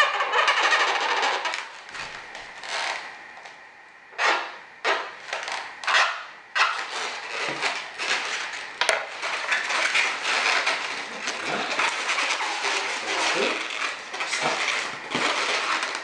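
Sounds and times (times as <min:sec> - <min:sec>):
balloons rubbing together: 0:04.2 - 0:16.0.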